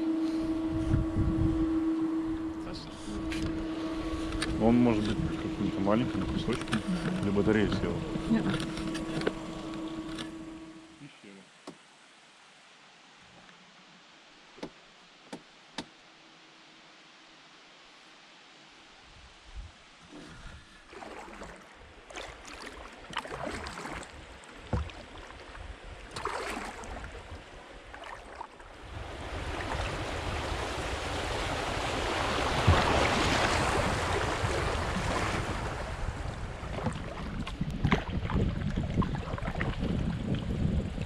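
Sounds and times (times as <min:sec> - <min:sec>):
wind rumble on microphone: 0:00.0 - 0:10.8, 0:19.1 - 0:20.8, 0:28.7 - 0:41.0
paddle strokes splashing: 0:01.8 - 0:11.0, 0:20.0 - 0:40.5
water rushing over rocks: 0:29.3 - 0:40.6.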